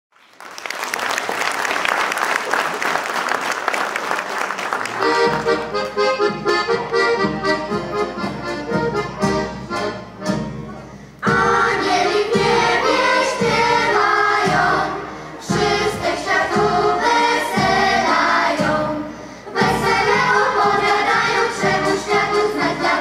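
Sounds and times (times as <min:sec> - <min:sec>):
audience applause: 0:00.1 - 0:05.9
solo accordion playing carol: 0:05.0 - 0:10.9.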